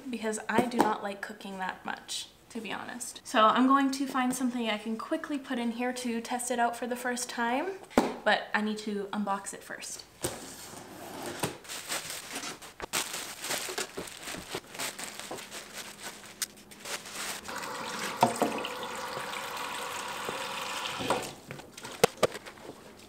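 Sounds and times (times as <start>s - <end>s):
plastic wrapping crinkling: 11.6s - 18.2s
tap running into metal sink: 17.6s - 21.3s.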